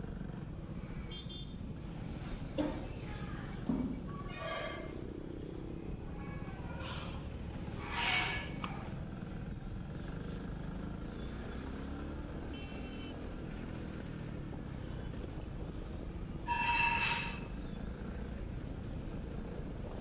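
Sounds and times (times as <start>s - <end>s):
road and wind noise: 0.0s - 20.0s
motorcycle engine running: 4.9s - 16.5s.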